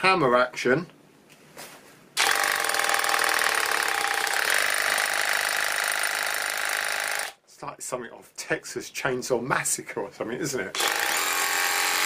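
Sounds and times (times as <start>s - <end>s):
hammer drill running: 2.2s - 7.4s, 10.8s - 12.0s.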